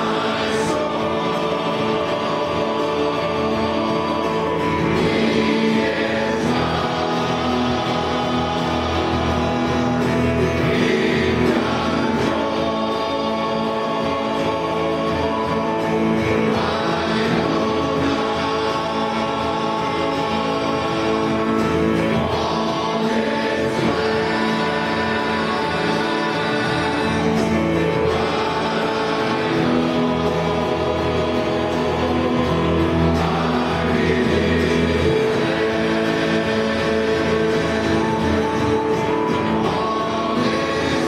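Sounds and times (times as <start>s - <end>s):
men's choir singing: 0.0s - 41.0s.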